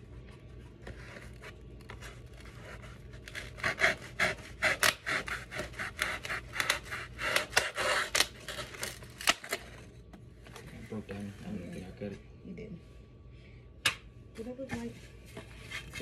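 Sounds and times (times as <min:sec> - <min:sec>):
knife sawing through foam: 0:02.5 - 0:08.3.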